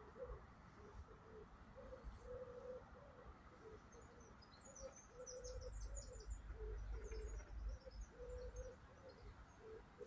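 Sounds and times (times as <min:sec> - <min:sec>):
songbirds chirping: 0:00.0 - 0:10.0.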